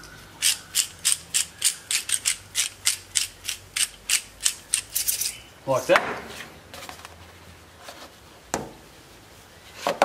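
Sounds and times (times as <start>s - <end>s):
spice grinder ratcheting clicks: 0.4s - 5.3s.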